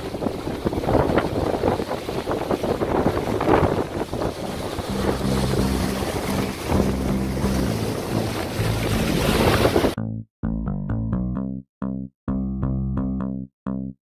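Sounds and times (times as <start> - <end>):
rushing churning water: 0.0 - 10.0
wind buffeting microphone: 0.0 - 10.0.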